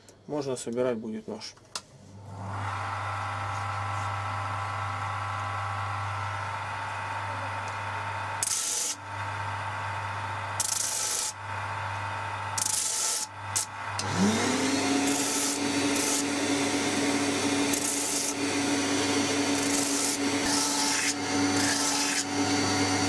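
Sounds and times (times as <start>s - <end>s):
bench grinder humming: 2.2s - 23.0s.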